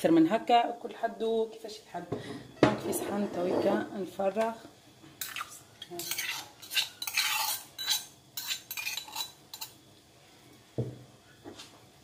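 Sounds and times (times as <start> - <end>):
metal scraping in brass mortar: 6.0 - 9.7.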